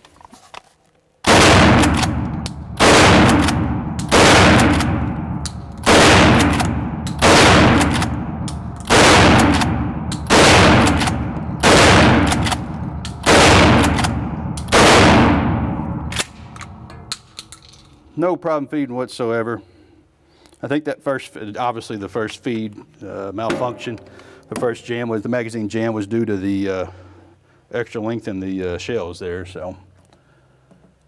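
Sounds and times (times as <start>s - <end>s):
shotgun blasts ringing indoors: 1.2s - 17.4s
shotgun pump action: 1.7s - 15.0s.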